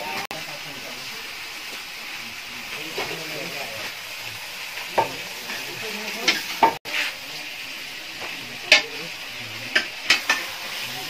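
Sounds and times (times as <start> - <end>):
meat sizzling in a pan: 0.0 - 11.0
utensils knocking on pan: 4.9 - 6.8, 8.2 - 9.0, 9.7 - 10.5.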